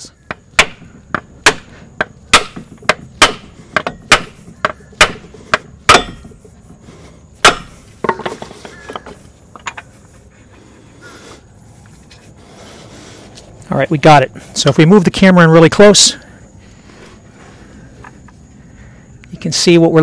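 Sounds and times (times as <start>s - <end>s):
hammer striking metal tool: 0.3s - 5.3s, 5.9s - 6.4s, 7.4s - 8.3s.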